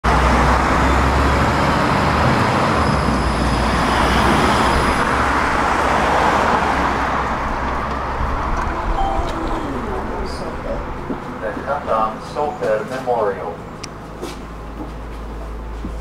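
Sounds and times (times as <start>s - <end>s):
road traffic: 0.0s - 16.0s
electric tram rolling: 0.1s - 16.0s.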